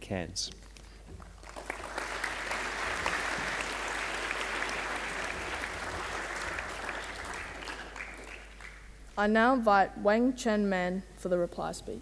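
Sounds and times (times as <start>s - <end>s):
audience applauding: 1.2s - 9.0s.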